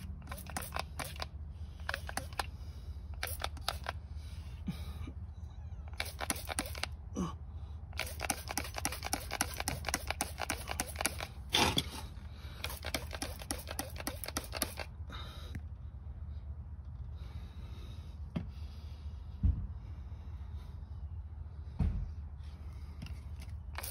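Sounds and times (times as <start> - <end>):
spray bottle squirts: 0.0 - 2.5, 3.2 - 4.0, 6.0 - 6.9, 8.0 - 12.0, 12.6 - 14.9, 23.4 - 23.9.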